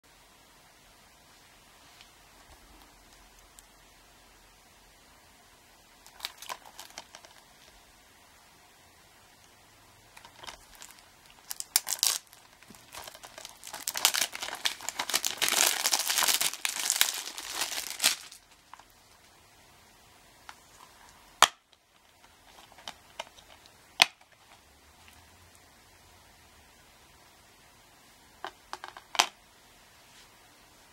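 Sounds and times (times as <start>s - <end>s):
shrink wrap crinkling and tearing: 6.0s - 7.8s, 10.2s - 19.3s, 20.7s - 24.6s.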